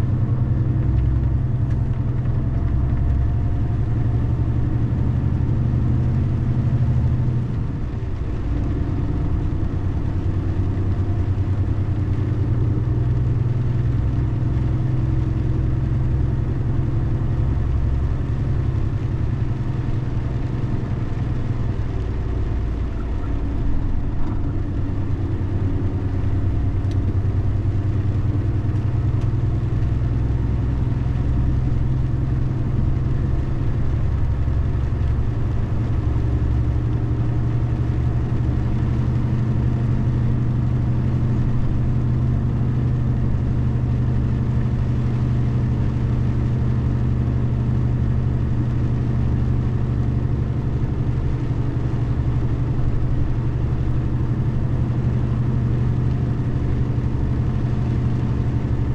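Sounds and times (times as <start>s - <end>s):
car engine hum: 0.0s - 58.9s
road noise: 0.0s - 58.9s.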